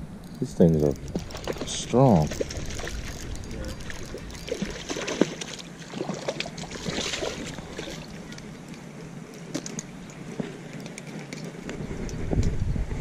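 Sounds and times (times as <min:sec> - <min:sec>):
fish splashing in water: 0:01.0 - 0:08.4.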